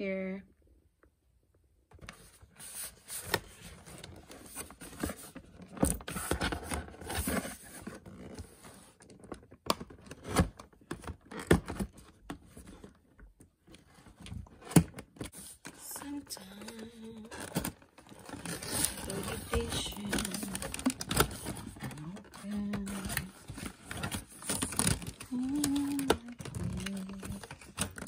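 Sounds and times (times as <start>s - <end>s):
hands handling cardboard and plastic: 1.9s - 28.0s.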